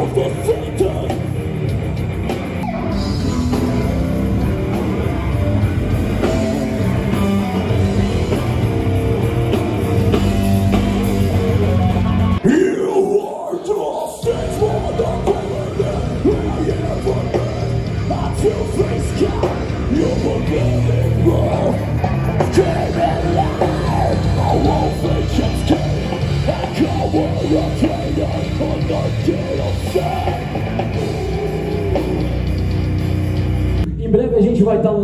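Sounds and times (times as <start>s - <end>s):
man singing: 0.0s - 1.3s, 11.6s - 32.5s
bass guitar: 0.0s - 13.2s, 14.0s - 35.0s
distorted electric guitar: 0.0s - 34.0s
drums: 0.0s - 35.0s.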